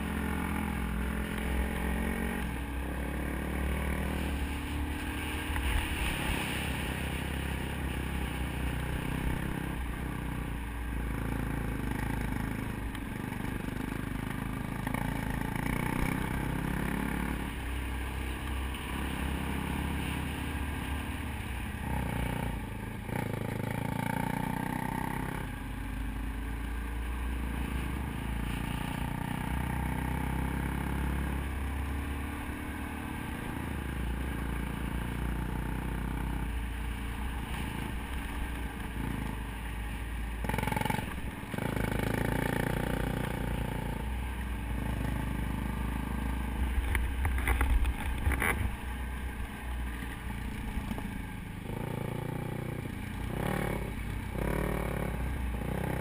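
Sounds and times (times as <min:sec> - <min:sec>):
dirt bike engine revving: 0:00.0 - 0:10.4, 0:21.6 - 0:25.5, 0:40.4 - 0:44.0, 0:51.6 - 0:56.0.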